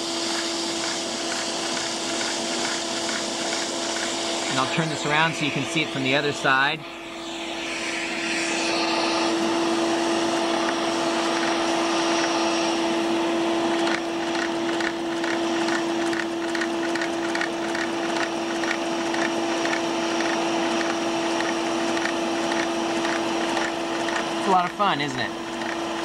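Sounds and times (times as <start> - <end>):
vacuum pump humming: 0.0 - 26.0.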